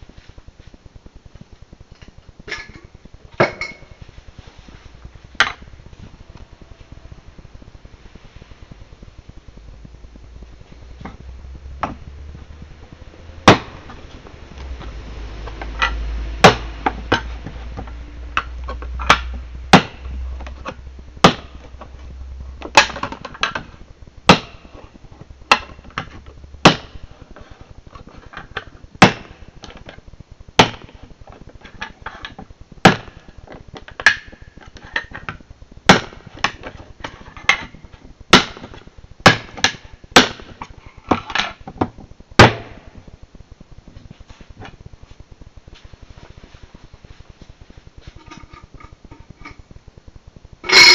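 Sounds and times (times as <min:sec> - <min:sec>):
sharp hard knocks: 0:13.4 - 0:13.8, 0:15.8 - 0:17.3, 0:19.0 - 0:20.1, 0:21.2 - 0:21.6, 0:24.3 - 0:24.7, 0:26.6 - 0:27.0, 0:29.0 - 0:29.4, 0:32.8 - 0:33.2, 0:35.9 - 0:36.6, 0:38.3 - 0:40.6, 0:42.4 - 0:42.8.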